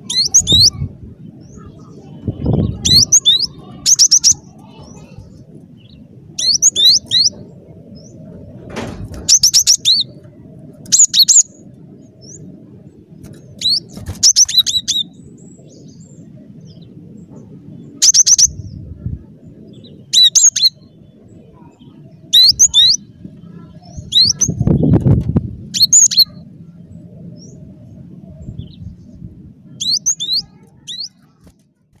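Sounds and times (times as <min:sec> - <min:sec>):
faint low rumble: 0:00.0 - 0:32.0.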